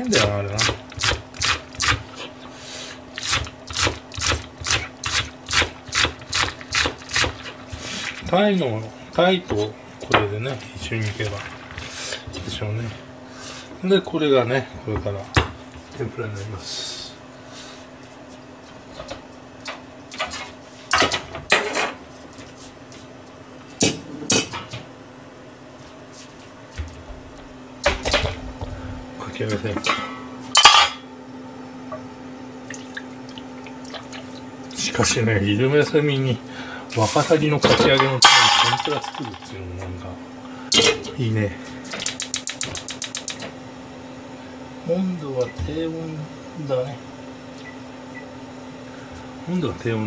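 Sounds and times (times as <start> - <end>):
steady low hum: 0.0 - 50.0
pots and dishes clinking: 29.8 - 31.0.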